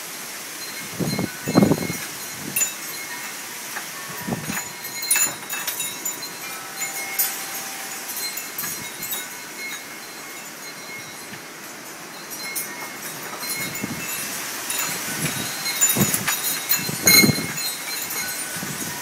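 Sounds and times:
wind rustling tree leaves: 0:00.0 - 0:19.0
wind gusts knocking on microphone: 0:00.8 - 0:02.8, 0:04.1 - 0:06.2, 0:12.4 - 0:19.0.

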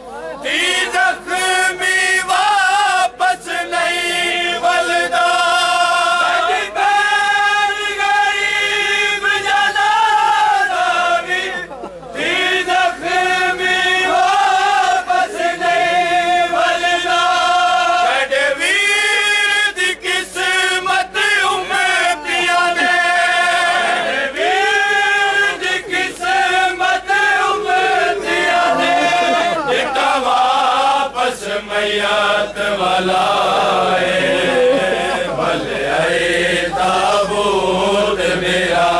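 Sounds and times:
men chanting a lament: 0:00.0 - 0:38.9.

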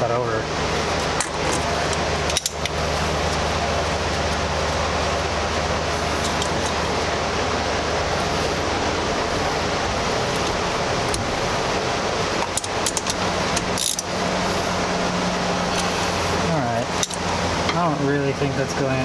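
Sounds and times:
low hum: 0:00.0 - 0:19.0
rushing background noise: 0:00.0 - 0:19.0
ratchet wrench clicking: 0:02.3 - 0:02.8, 0:12.5 - 0:14.1.

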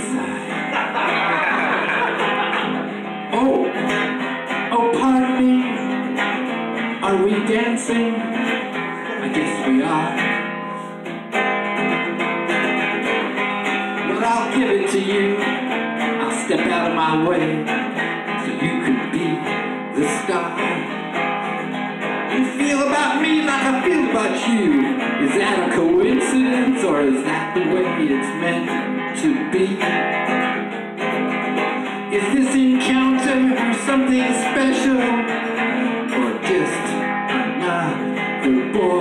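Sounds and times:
man singing: 0:00.0 - 0:01.3, 0:03.1 - 0:10.5, 0:14.0 - 0:21.2, 0:22.3 - 0:30.0, 0:31.8 - 0:39.0
acoustic guitar strumming: 0:00.0 - 0:39.0.

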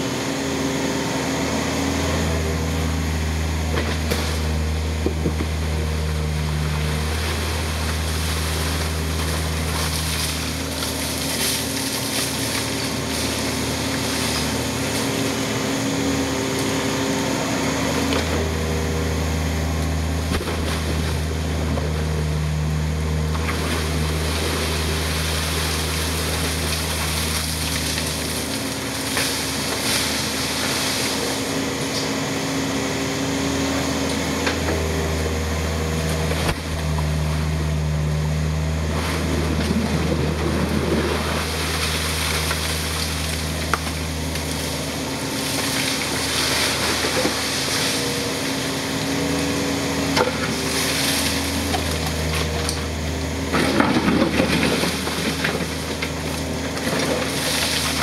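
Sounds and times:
excavator diesel engine running: 0:00.0 - 0:58.0
bucket scraping sand and stones: 0:06.9 - 0:15.2, 0:23.4 - 0:31.5, 0:38.8 - 0:48.5, 0:53.4 - 0:58.0.

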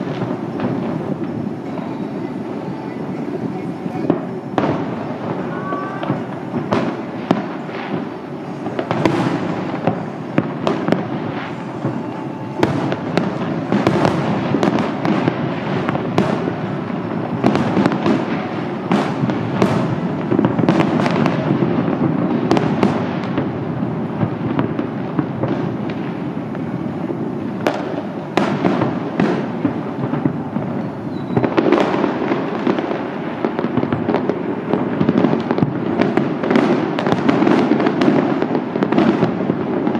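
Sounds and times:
fireworks bursting: 0:00.0 - 0:39.9
fireworks rumble and crackle: 0:00.0 - 0:39.9.

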